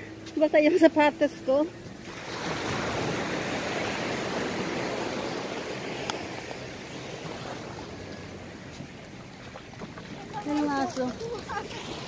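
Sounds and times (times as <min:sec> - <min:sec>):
surf washing up a beach: 0:01.9 - 0:12.0.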